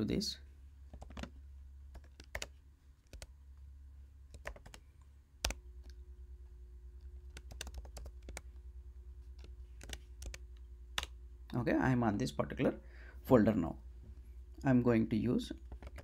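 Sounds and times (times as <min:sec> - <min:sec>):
faint low hum: 0:00.0 - 0:16.0
computer keyboard typing: 0:00.9 - 0:03.3, 0:04.3 - 0:04.8, 0:05.4 - 0:06.0, 0:07.2 - 0:08.5, 0:09.3 - 0:10.4, 0:15.7 - 0:16.0.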